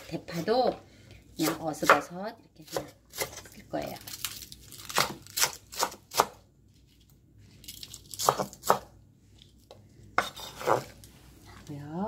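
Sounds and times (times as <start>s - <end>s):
knife slicing on wooden board: 10.2s - 10.9s.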